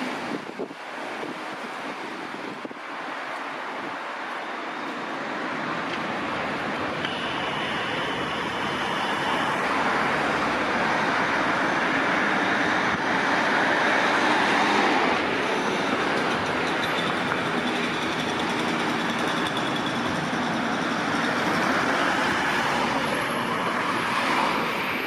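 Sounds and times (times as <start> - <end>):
tram running on rails: 0.0 - 25.0
thin high tone: 7.0 - 9.8.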